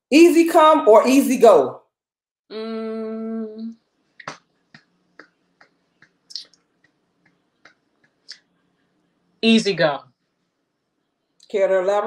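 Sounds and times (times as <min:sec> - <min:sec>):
person humming: 0:02.5 - 0:03.8.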